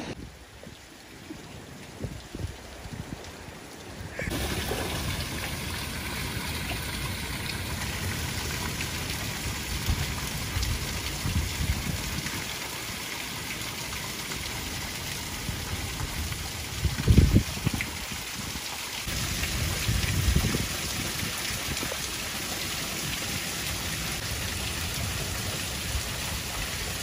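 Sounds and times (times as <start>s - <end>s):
waterfall splashing onto rock: 4.1s - 27.0s.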